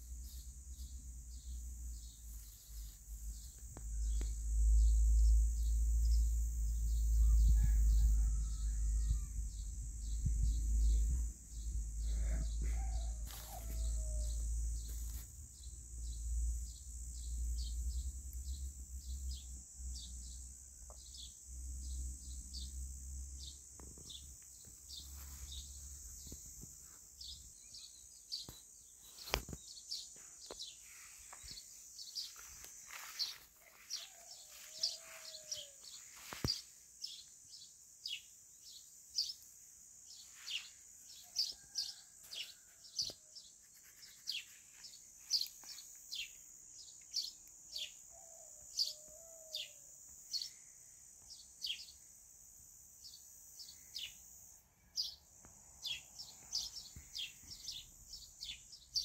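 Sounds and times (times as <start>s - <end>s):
wind rumbling on microphone: 7.3s - 12.8s.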